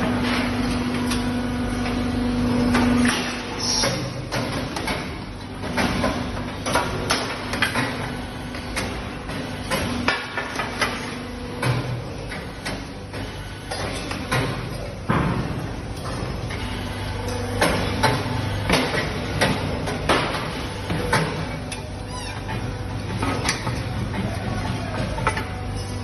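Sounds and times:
casting machine humming: 12.9s - 26.0s.

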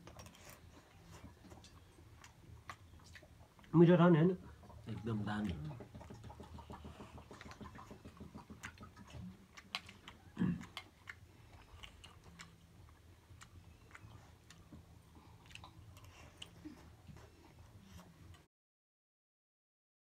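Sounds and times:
chewing: 0.0s - 18.5s.

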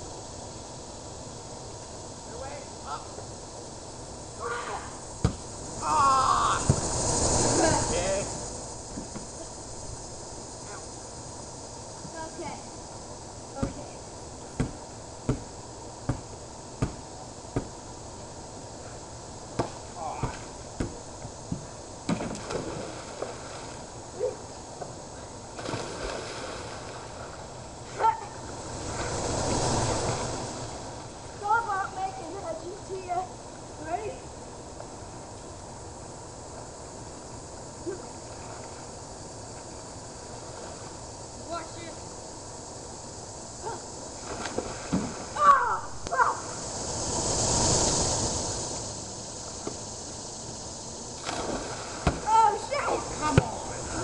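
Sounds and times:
wind gust through trees: 0.0s - 54.0s
pool water splashing: 4.4s - 10.8s, 19.4s - 24.5s, 25.1s - 33.2s, 43.7s - 49.7s, 51.0s - 54.0s.

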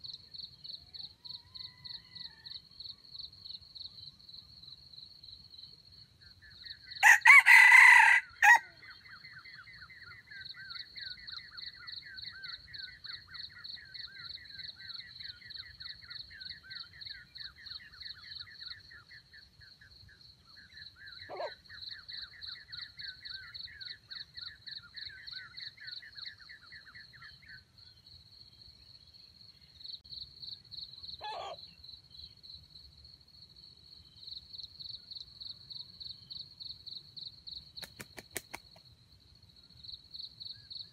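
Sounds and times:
rooster crowing: 1.5s - 2.6s, 7.0s - 8.8s
insects trilling: 6.7s - 9.0s
short bird calls: 31.2s - 31.6s.

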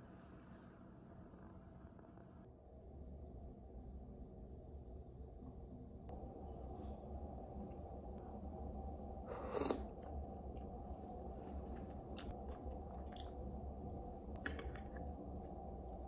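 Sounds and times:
low room hum: 0.0s - 16.0s
chewing: 8.8s - 15.2s.

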